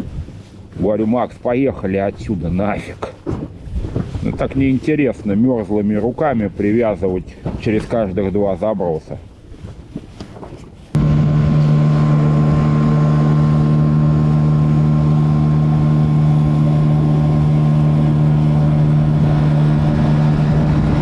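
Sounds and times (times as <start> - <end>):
outboard motor running: 11.0 - 21.0.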